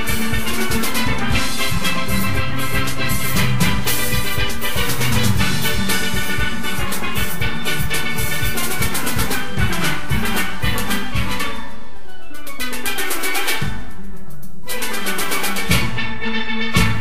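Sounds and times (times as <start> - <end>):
bass pans and percussion: 0.0 - 17.0
steelband playing: 0.0 - 17.0.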